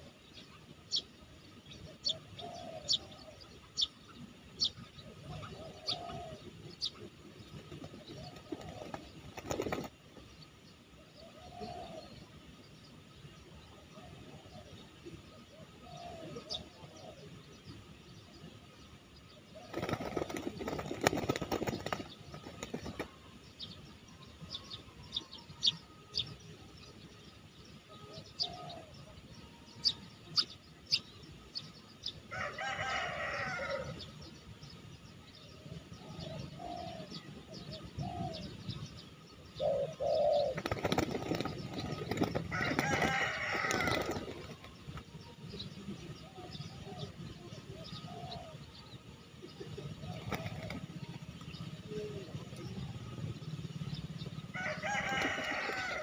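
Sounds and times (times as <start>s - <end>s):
doves cooing: 2.1s - 3.8s, 5.0s - 6.9s, 7.5s - 10.0s, 11.2s - 12.3s, 15.5s - 17.4s, 19.6s - 23.2s, 28.1s - 29.3s, 32.3s - 34.1s, 36.0s - 38.8s, 39.5s - 45.0s, 46.2s - 56.0s
pigeon wings flapping: 8.2s - 9.9s, 19.7s - 23.1s, 40.6s - 44.7s.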